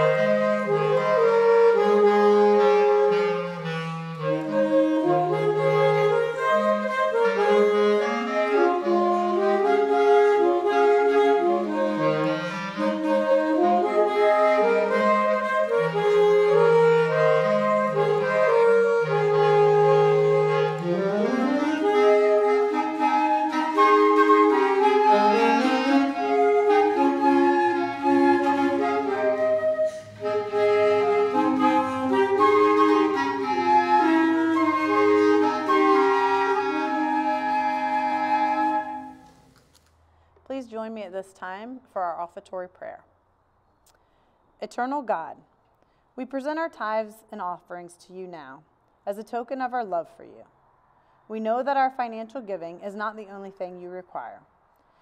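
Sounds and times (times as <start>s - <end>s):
clarinet: 0.0s - 39.6s
flute: 0.0s - 39.6s
saxophone: 0.0s - 39.6s.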